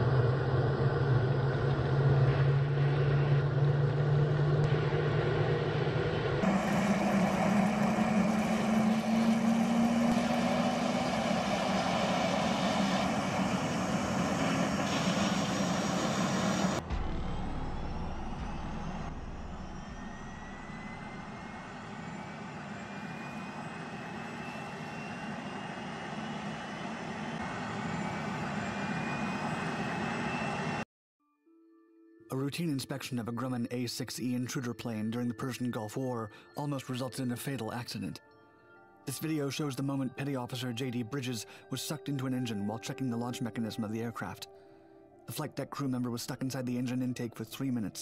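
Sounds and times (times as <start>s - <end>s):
jet engine running: 0.0s - 30.9s
faint high whine: 0.2s - 30.8s.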